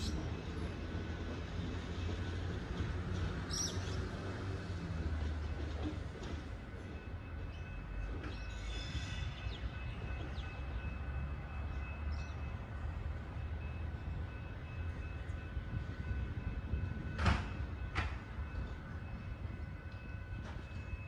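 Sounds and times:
distant electric train rumble: 0.0 - 21.0
brief train squeal: 7.4 - 10.6.

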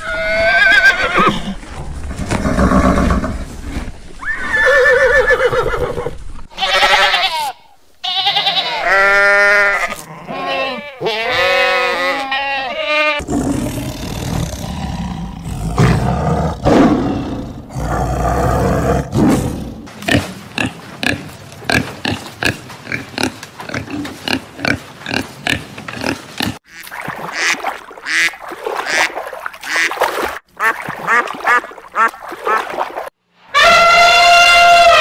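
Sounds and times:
tiger growling: 13.2 - 20.0
ducks quacking: 20.1 - 30.0.

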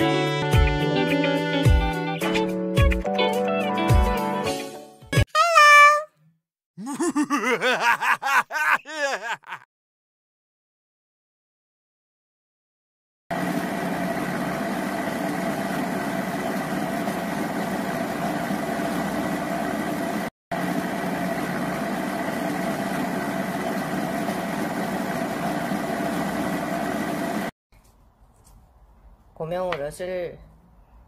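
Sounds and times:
blender motor grinding: 13.3 - 27.5.

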